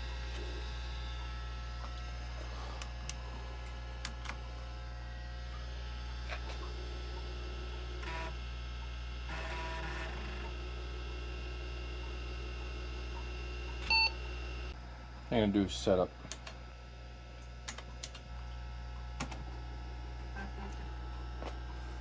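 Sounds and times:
computer hard drive hum: 0:00.0 - 0:22.0.

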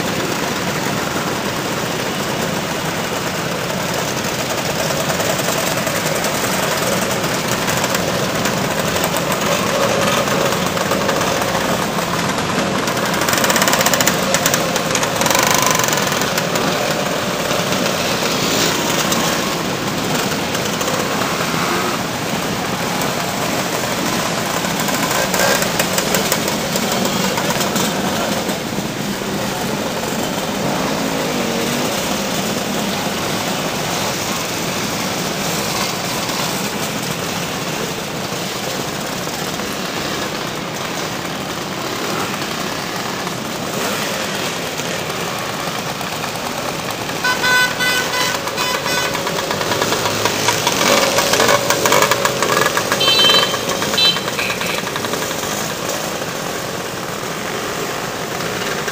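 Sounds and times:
scooter engines droning: 0:00.0 - 0:58.9
scooter horns tooting: 0:47.1 - 0:55.3.

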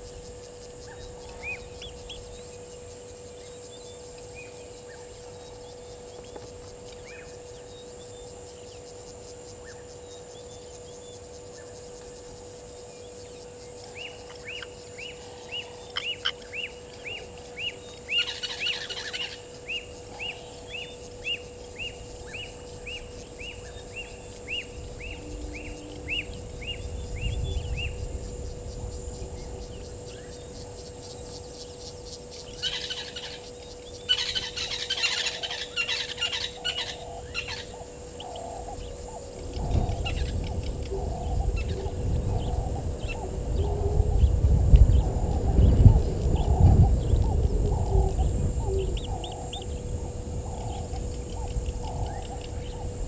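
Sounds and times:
bird calling metallic tink: 0:13.0 - 0:27.8.

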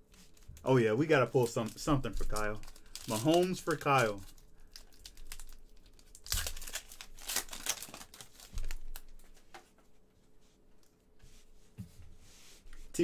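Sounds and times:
foil wrapper crinkling: 0:00.2 - 0:09.5.

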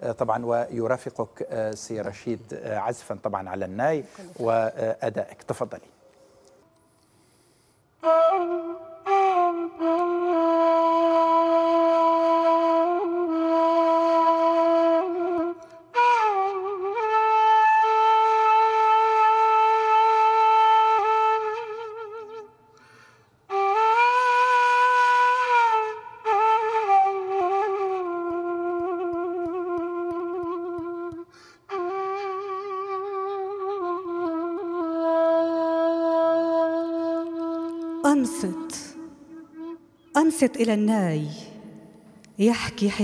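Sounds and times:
reed flute playing: 0:08.0 - 0:40.2.

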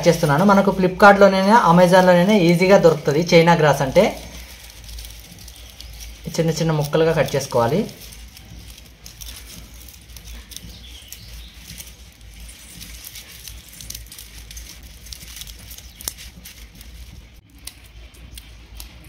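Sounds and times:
brittle strands rustling: 0:00.0 - 0:19.0
scissors snipping: 0:04.0 - 0:19.0.

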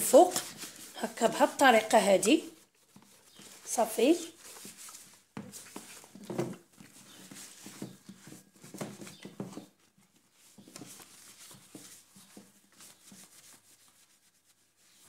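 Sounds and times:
cloth rubbing metal kettle: 0:00.0 - 0:02.6.

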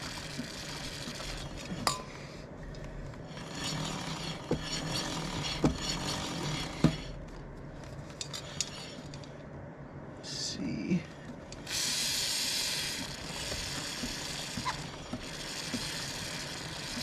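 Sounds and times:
chain running over sprocket: 0:00.0 - 0:01.9, 0:03.3 - 0:07.0, 0:11.7 - 0:17.0.

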